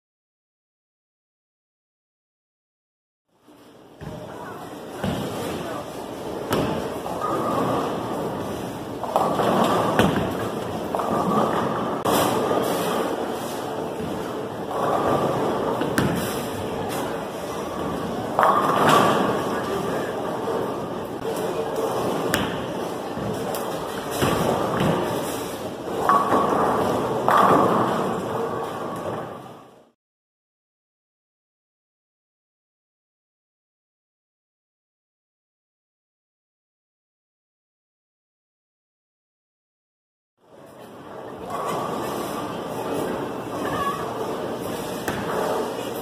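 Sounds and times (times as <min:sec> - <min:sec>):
bowling alley rumble and clatter: 0:03.6 - 0:29.9, 0:40.5 - 0:46.0
bowling ball rolling: 0:06.2 - 0:29.6.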